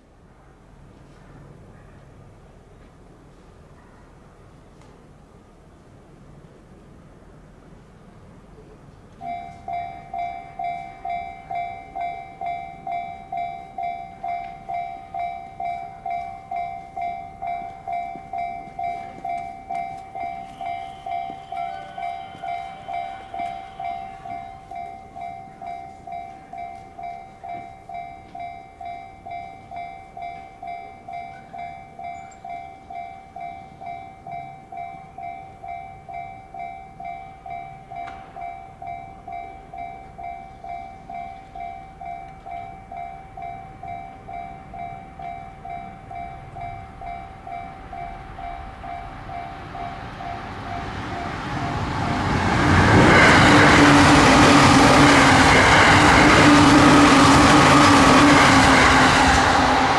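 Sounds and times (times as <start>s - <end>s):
train passing at speed: 0.0s - 59.9s
level crossing bell ringing: 9.2s - 59.9s.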